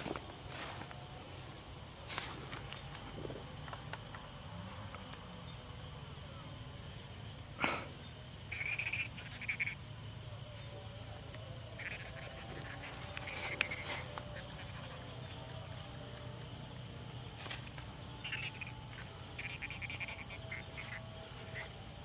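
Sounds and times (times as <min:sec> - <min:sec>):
high insect trill: 0:00.0 - 0:22.0
short buzzy frog or cricket calls: 0:07.5 - 0:10.7, 0:11.7 - 0:15.8, 0:17.2 - 0:22.0.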